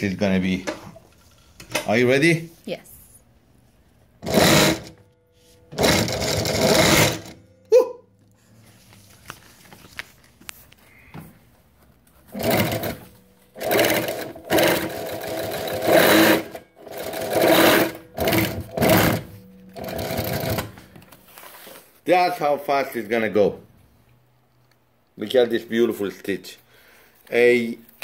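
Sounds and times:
industrial sewing machine stitching: 4.2 - 5.0, 5.7 - 7.4, 12.3 - 13.0, 13.6 - 20.7.

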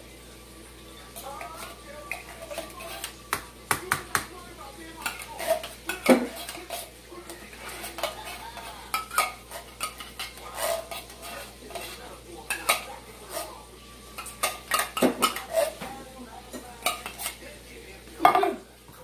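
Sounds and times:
metal utensil scraping a can: 1.2 - 3.2, 5.0 - 6.9, 7.5 - 13.6, 14.2 - 15.8.

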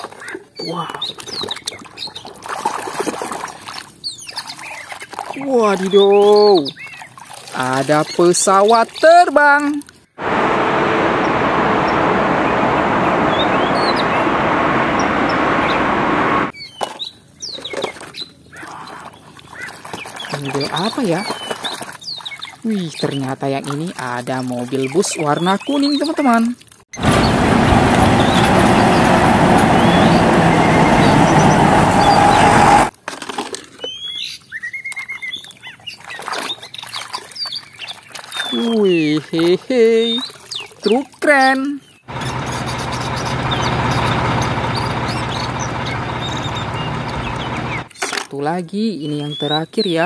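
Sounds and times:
toy splashing in water: 0.0 - 6.0, 34.9 - 41.2
birds chirping: 4.0 - 9.3, 11.1 - 23.4, 27.0 - 32.9, 33.9 - 47.9, 48.8 - 50.0
bus engine running: 10.2 - 16.5, 27.0 - 32.9, 42.1 - 47.9
jet airliner taking off: 10.2 - 16.5, 27.0 - 32.9.

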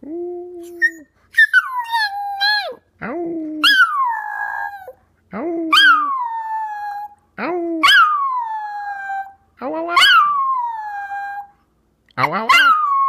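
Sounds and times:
dog howling: 3.6 - 4.9, 7.8 - 9.4, 10.0 - 11.5, 12.3 - 13.0.

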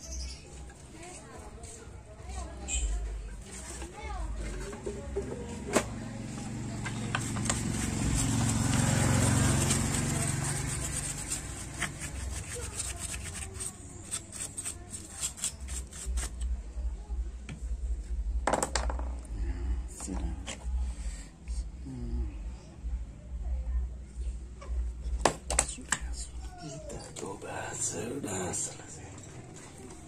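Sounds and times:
brush scrubbing circuit board: 7.2 - 16.4.

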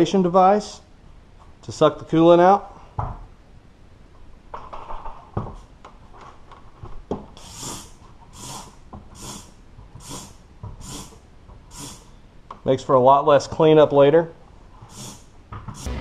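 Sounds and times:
short hissing sucks: 7.4 - 11.1, 11.7 - 12.1, 14.9 - 16.0.

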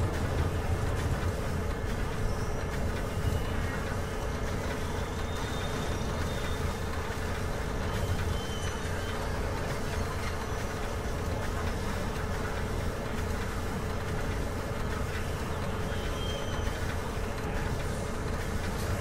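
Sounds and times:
faint high motor whine: 0.0 - 19.0.

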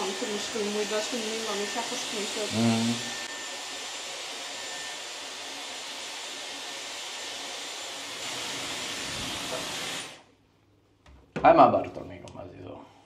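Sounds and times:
hair dryer running: 0.0 - 10.3.

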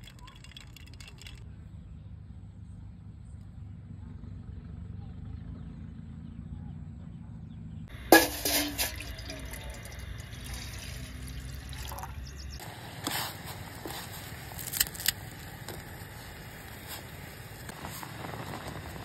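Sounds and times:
water pouring into a pot: 0.0 - 1.4, 8.0 - 12.5
dry noodles snapping: 14.3 - 15.8.

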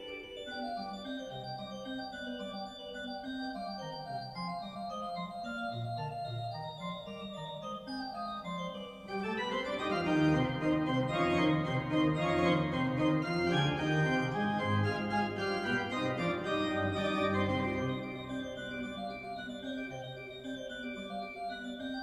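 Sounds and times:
pipe organ playing: 8.5 - 20.9.

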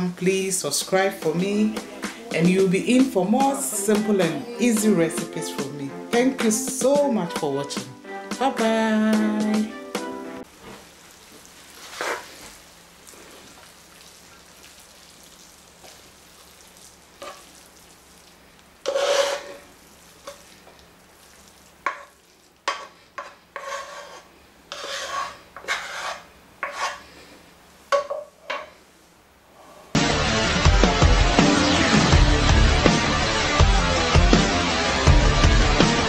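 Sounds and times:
upbeat electronic music: 1.6 - 10.4, 30.0 - 36.0
spatula scraping a pan: 11.8 - 12.6, 17.2 - 17.6, 18.8 - 20.6, 21.8 - 27.2.

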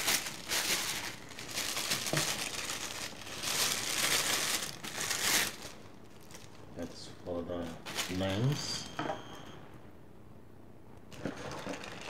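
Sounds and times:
plastic bag crinkling: 0.0 - 6.7, 7.6 - 8.9, 11.1 - 12.0.

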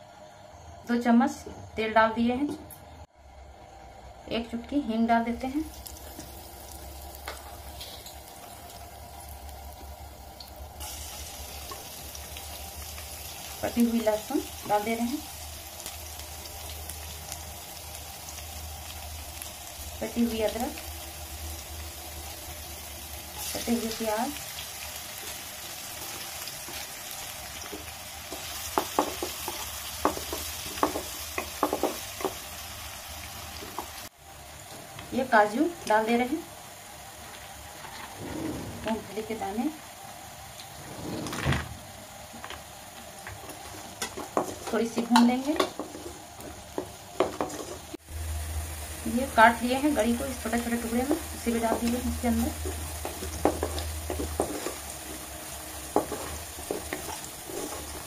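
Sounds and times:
hot oil sizzling: 5.2 - 58.0
wooden spatula scraping pan: 37.8 - 39.4, 40.8 - 41.5, 55.9 - 58.0.

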